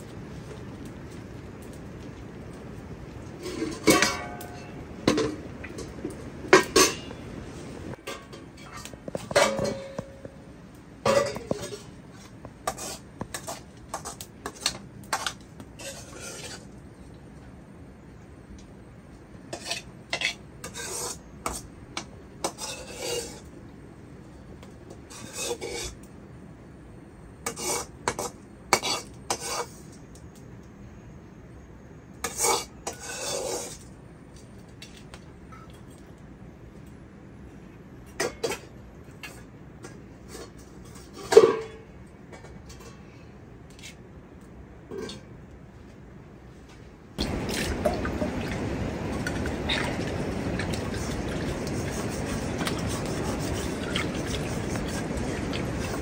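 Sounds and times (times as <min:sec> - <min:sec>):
metal pots and utensils clinking: 0:03.4 - 0:07.2, 0:07.9 - 0:10.3, 0:11.0 - 0:12.0, 0:38.1 - 0:43.1, 0:44.9 - 0:45.3.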